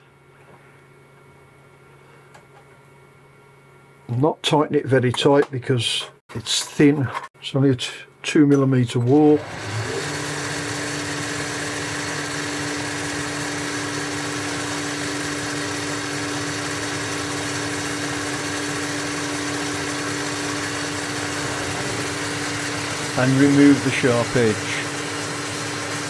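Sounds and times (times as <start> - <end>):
metal lathe humming: 9.0 - 26.0.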